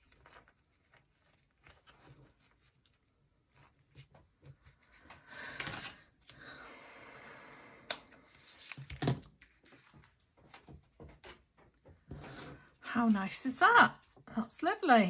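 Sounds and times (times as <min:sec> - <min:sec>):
hands rustling and pulling cord: 0:00.0 - 0:06.0, 0:08.1 - 0:13.2.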